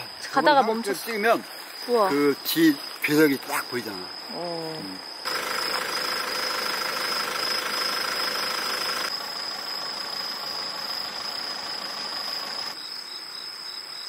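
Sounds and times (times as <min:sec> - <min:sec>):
insects trilling: 0:00.0 - 0:14.0
car engine running: 0:05.3 - 0:09.2.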